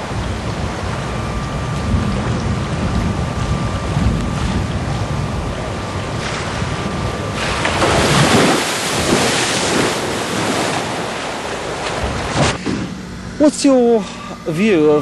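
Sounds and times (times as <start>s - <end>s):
wind buffeting microphone: 0.0s - 12.4s
water splashing against wall: 7.4s - 12.6s.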